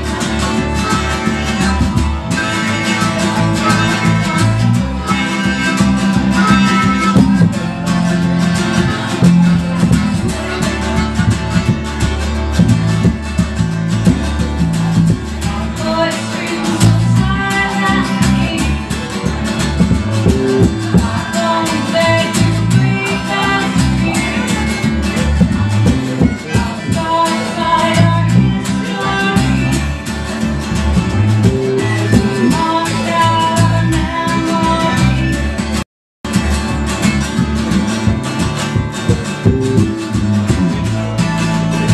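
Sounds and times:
harmonica: 0.0s - 15.5s, 16.1s - 35.8s, 37.0s - 41.9s
strummed acoustic guitar: 0.0s - 41.9s
person singing: 15.4s - 19.3s, 20.2s - 25.0s, 25.9s - 29.9s, 31.4s - 35.4s.

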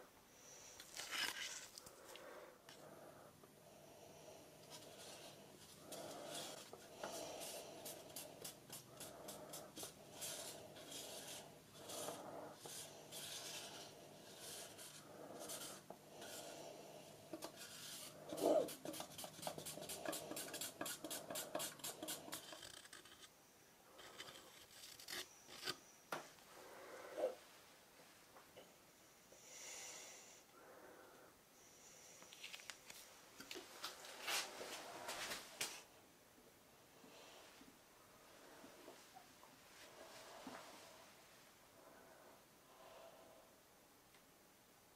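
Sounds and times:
stir stick scraping silicone: 4.7s - 16.6s, 17.3s - 23.3s.

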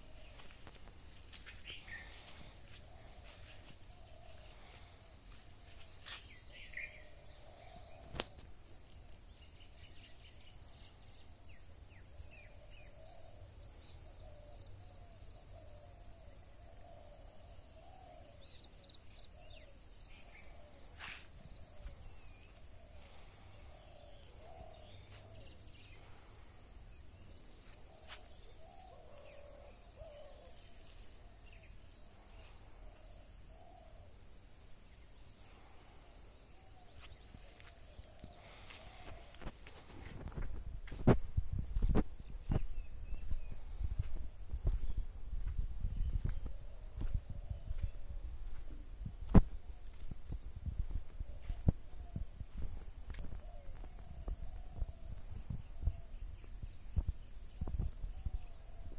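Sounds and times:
birds calling: 0.0s - 34.2s
high insect drone: 0.0s - 58.9s.

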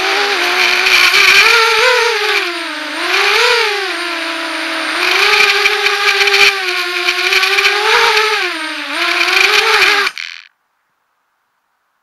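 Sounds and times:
quadcopter motors whining: 0.0s - 10.5s.

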